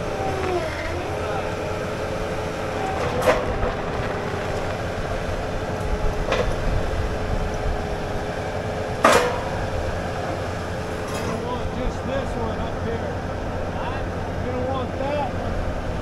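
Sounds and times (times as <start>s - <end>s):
diesel engine running: 0.0s - 16.0s
machine whine: 0.0s - 16.0s
sharp metal clanks: 9.0s - 9.7s.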